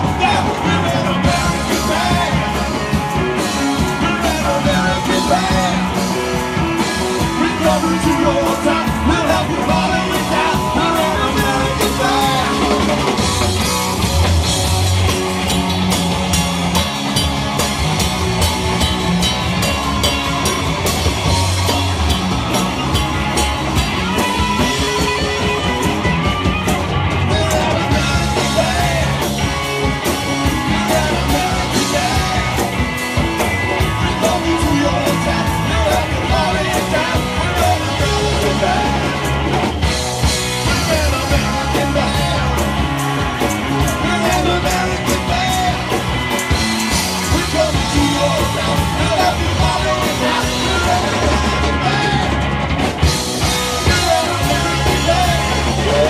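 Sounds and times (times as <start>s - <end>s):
person singing: 0.0s - 13.3s, 27.1s - 39.4s, 40.4s - 46.1s, 47.0s - 52.4s, 53.5s - 56.0s
amplified rock instruments: 0.0s - 56.0s
drum kit with cymbal crashes: 0.0s - 56.0s.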